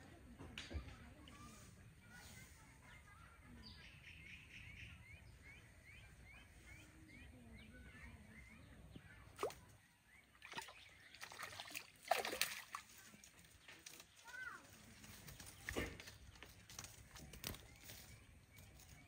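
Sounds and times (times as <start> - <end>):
water splashing and sloshing: 9.3 - 18.0.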